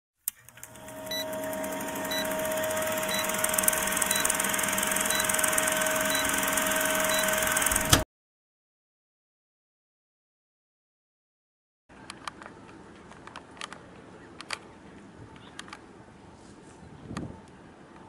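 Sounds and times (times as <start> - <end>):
film projector whirring: 0.3 - 8.0
short beeps: 1.1 - 1.4, 2.1 - 3.4, 4.0 - 7.5.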